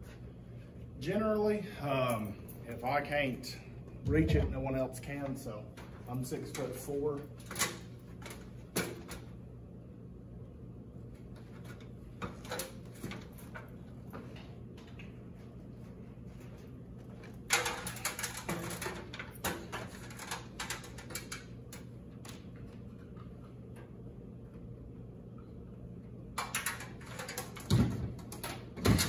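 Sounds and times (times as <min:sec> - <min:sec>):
steady low hum: 0:00.0 - 0:29.0
clicks and rustles of handling plastic: 0:04.2 - 0:09.3, 0:16.4 - 0:24.0, 0:26.4 - 0:29.0.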